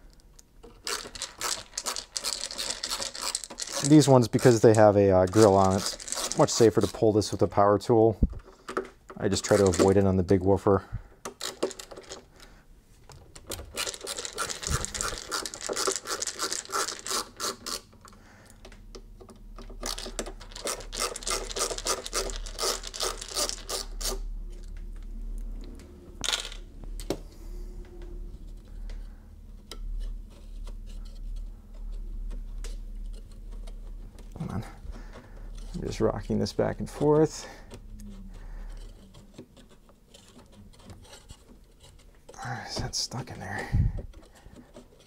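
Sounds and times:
power screwdriver rattling: 13.7 - 17.8.

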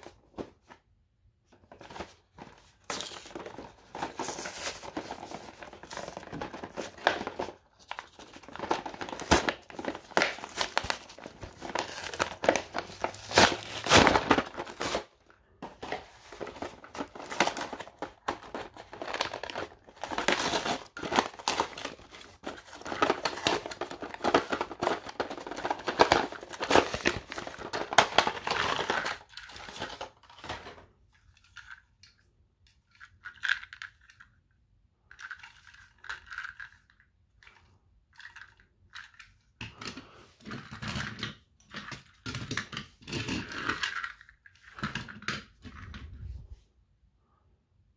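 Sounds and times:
cardboard and plastic tearing: 1.7 - 30.7.

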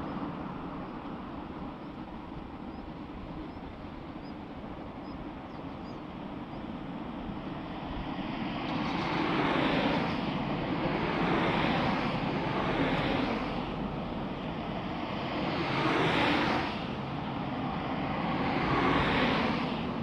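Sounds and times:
electric train rumbling: 0.0 - 20.0.

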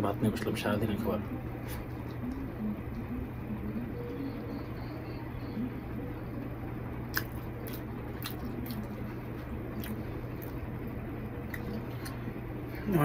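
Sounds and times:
steady low hum: 0.0 - 13.0
chewing food: 7.0 - 12.3
wet mouth clicks: 7.1 - 8.9, 11.5 - 12.2.

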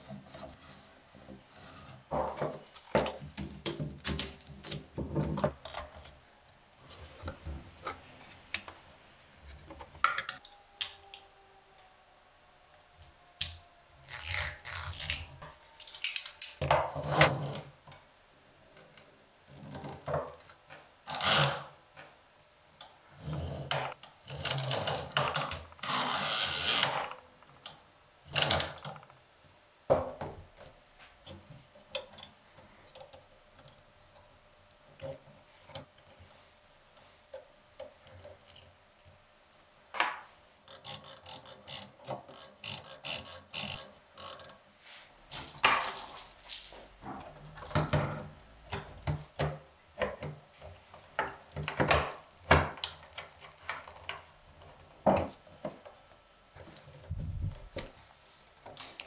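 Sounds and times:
metal parts clicking and knocking: 40.7 - 44.6, 45.3 - 49.5
ribbon spool ratchet clicking: 40.7 - 44.6.

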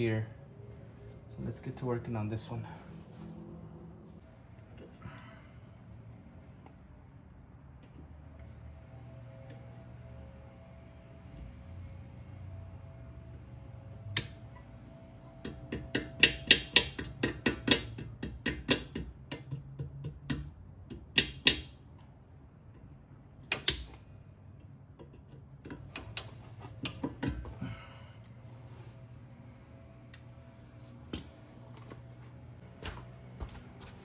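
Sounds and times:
sharp metallic clicks of hand tools: 14.1 - 14.5, 23.4 - 24.0.

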